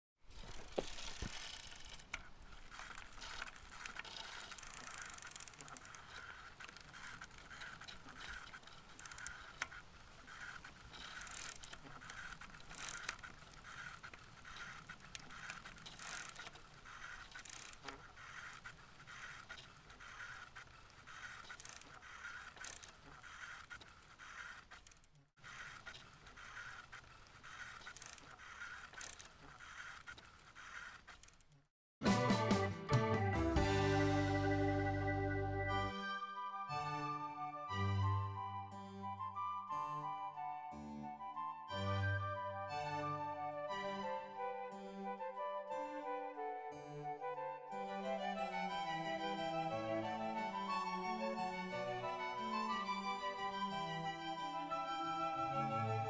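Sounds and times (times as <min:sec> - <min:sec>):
bicycle drivetrain whir: 0:00.2 - 0:31.7.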